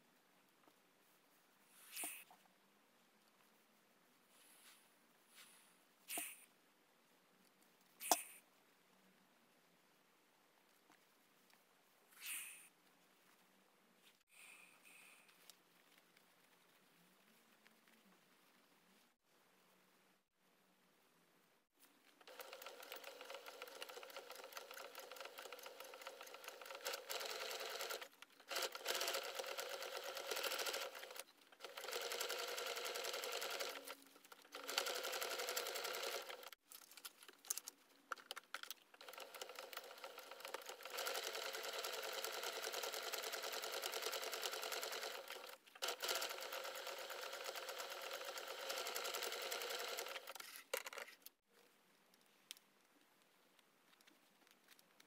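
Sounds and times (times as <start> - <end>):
electric sewing machine stitching: 22.2 - 36.6, 39.0 - 50.4.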